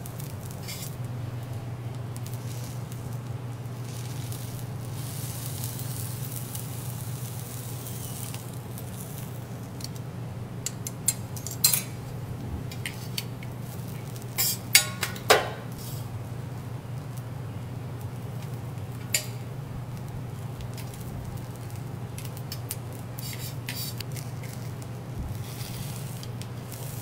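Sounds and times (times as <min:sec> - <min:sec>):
fried rice sizzling on griddle: 0:00.0 - 0:12.2, 0:12.9 - 0:15.0, 0:15.8 - 0:27.0
metal spatula scraping griddle: 0:00.6 - 0:00.9, 0:14.2 - 0:15.0, 0:23.2 - 0:24.6, 0:25.3 - 0:27.0.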